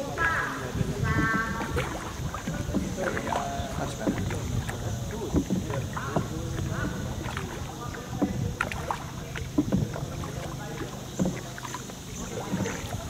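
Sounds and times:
boat engine drone: 0.0s - 13.0s
knocks against boat hull: 1.0s - 13.0s.

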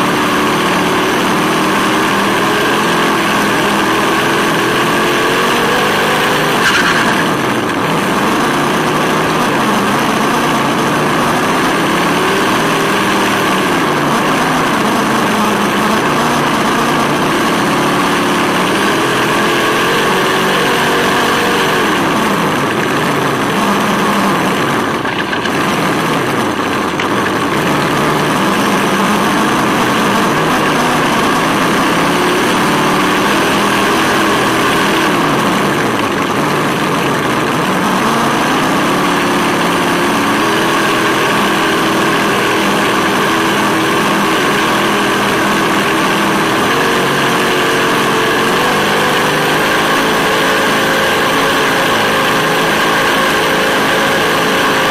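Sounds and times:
electric drivetrain whine: 0.0s - 54.9s
simulated engine sound: 0.0s - 54.9s
tyre noise on asphalt: 6.2s - 11.8s, 21.7s - 32.8s.

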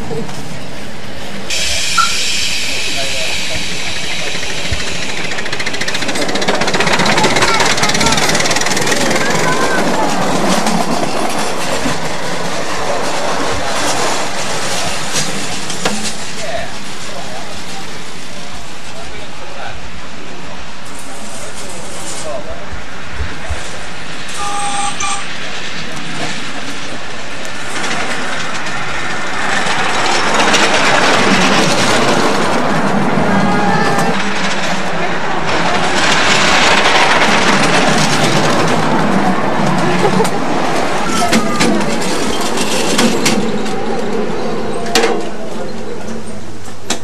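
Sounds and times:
steam exhaust: 1.3s - 10.7s
train wheels clattering on rails: 1.4s - 19.2s, 25.2s - 47.0s.

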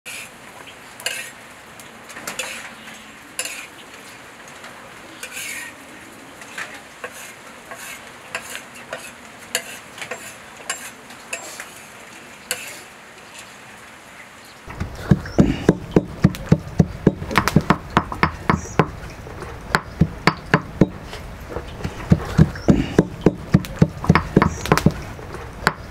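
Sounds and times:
steady hiss: 0.1s - 25.9s
spoon scraping grains in pan: 1.0s - 1.4s, 2.4s - 2.7s, 3.4s - 3.7s, 5.2s - 5.7s, 7.0s - 11.9s, 12.5s - 13.5s.

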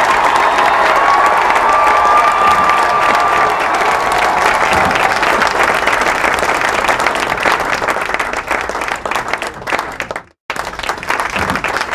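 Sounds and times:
crowd applauding: 0.0s - 11.9s.

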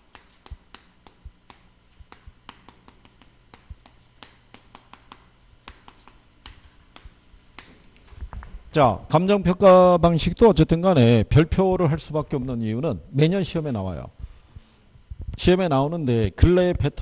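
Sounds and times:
chalk tapping on chalkboard: 0.0s - 8.0s.

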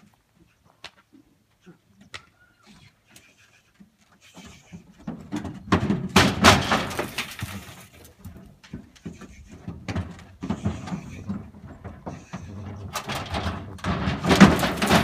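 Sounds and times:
hooves on wooden truck bed: 0.0s - 15.0s
horse landing on dirt: 4.9s - 12.2s, 12.9s - 15.0s.

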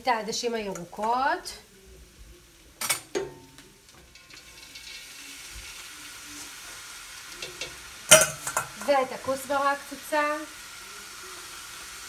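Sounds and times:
food sizzling in oil: 0.0s - 12.0s
metal bowl clinking on pot: 7.4s - 8.9s.

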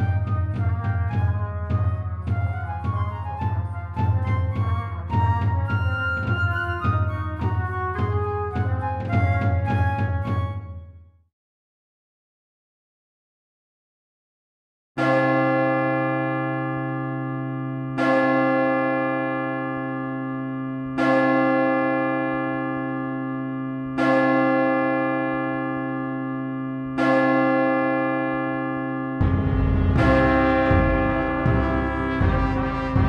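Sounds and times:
deep bell tolling: 29.2s - 33.0s.

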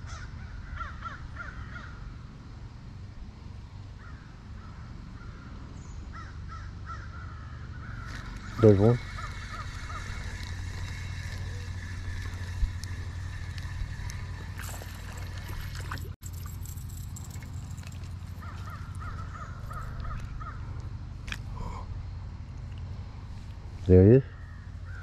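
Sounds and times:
steady low hum: 0.0s - 25.0s
bird calls: 4.0s - 16.0s, 18.3s - 21.8s, 24.0s - 25.0s.

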